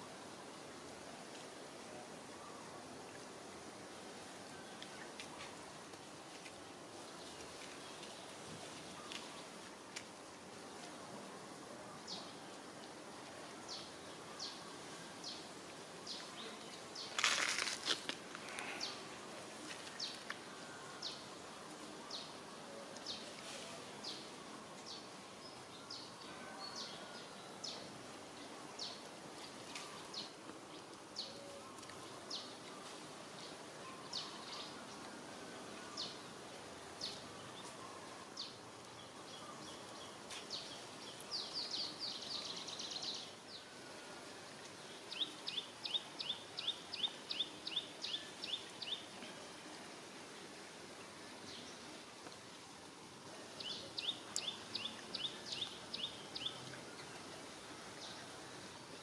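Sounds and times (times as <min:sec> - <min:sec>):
small birds chirping: 0:53.6 - 0:57.3.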